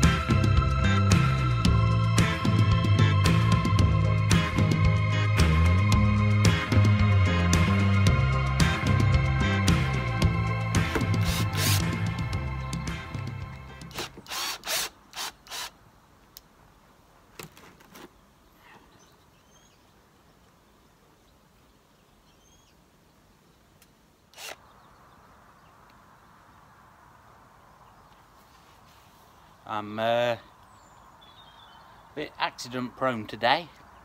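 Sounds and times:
background music: 0.0s - 14.2s
cordless drill driving screws: 10.9s - 11.9s, 13.9s - 15.8s, 24.3s - 24.6s
faint bird chirps: 18.1s - 26.8s, 30.4s - 32.2s.

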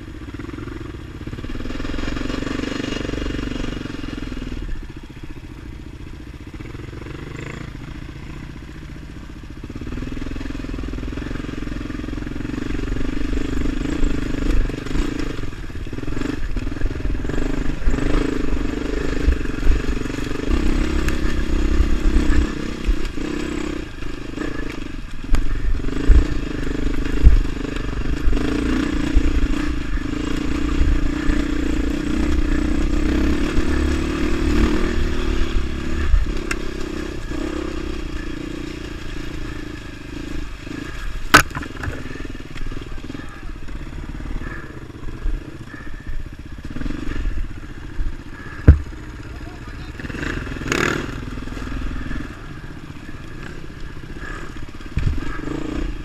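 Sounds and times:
dirt bike engine running: 0.0s - 56.0s
bike thumping over rocks: 41.2s - 42.1s
sharp crack: 41.3s - 42.7s.

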